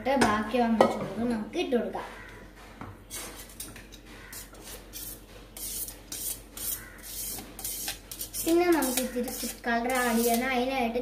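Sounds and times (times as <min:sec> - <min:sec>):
spoon scraping rice from colander: 0:04.3 - 0:10.5.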